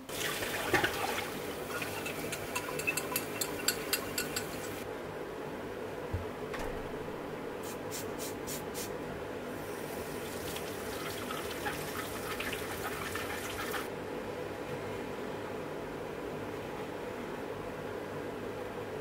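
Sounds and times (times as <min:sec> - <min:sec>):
kitchen tap running and splashing: 0:00.0 - 0:04.0, 0:09.8 - 0:13.9.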